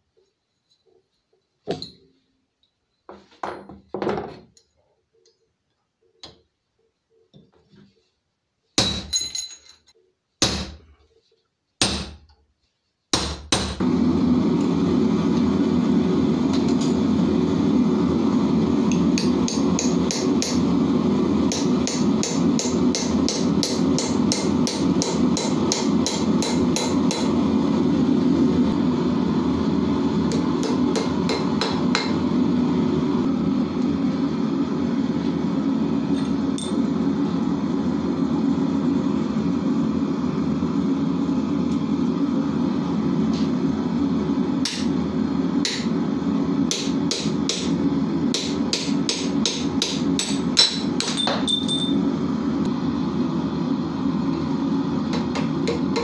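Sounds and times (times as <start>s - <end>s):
hammer striking iron on anvil: 8.8s - 9.6s, 10.4s - 10.8s, 11.8s - 12.2s, 13.1s - 13.8s, 18.9s - 20.6s, 21.5s - 27.3s, 30.3s - 32.2s, 44.6s - 44.9s, 45.6s - 45.9s, 46.7s - 52.0s.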